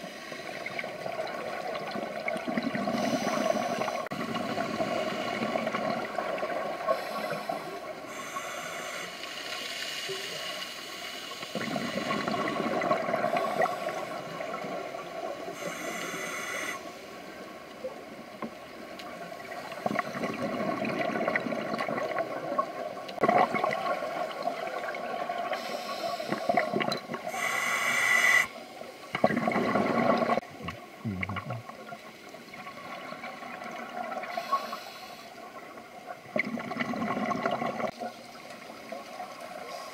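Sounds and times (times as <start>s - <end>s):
underwater background: 0.0s - 39.9s
regulator inhalation hiss: 3.0s - 4.1s, 6.9s - 12.3s, 13.3s - 14.4s, 15.6s - 17.1s, 25.6s - 26.6s, 27.3s - 28.6s, 34.3s - 35.5s
bubbling exhalations: 29.2s - 31.8s.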